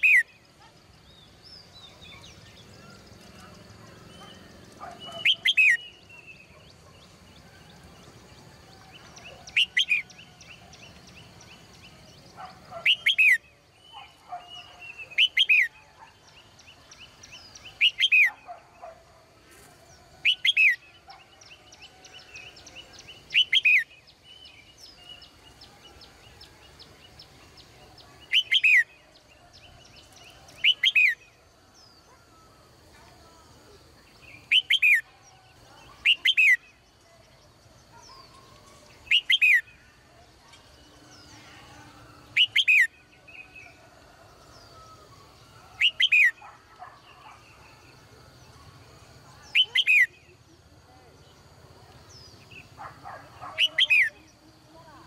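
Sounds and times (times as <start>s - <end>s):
birds chirping softly: 0.0s - 55.0s
bulbul whistled calls: 4.0s - 7.1s, 9.0s - 11.0s, 11.8s - 16.2s, 17.0s - 18.5s, 20.2s - 23.9s, 27.6s - 29.0s, 30.5s - 31.3s, 34.3s - 36.8s, 39.0s - 39.9s, 42.3s - 43.8s, 44.7s - 47.6s, 49.4s - 50.2s.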